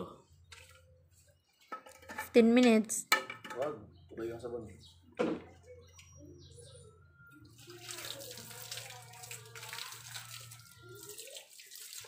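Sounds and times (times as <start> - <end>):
water running: 7.5 - 12.0.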